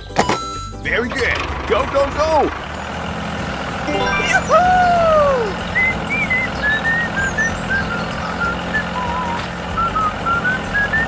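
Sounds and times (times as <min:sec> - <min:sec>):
chirpy whistled tune: 0:03.9 - 0:11.0.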